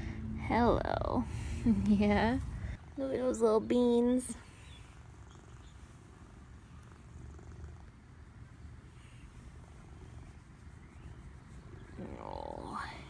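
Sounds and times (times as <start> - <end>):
cat purring: 4.7 - 13.0.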